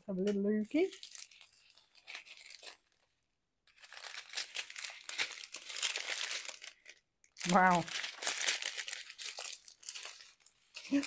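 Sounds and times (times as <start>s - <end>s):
plastic packaging crinkling: 0.1s - 11.0s.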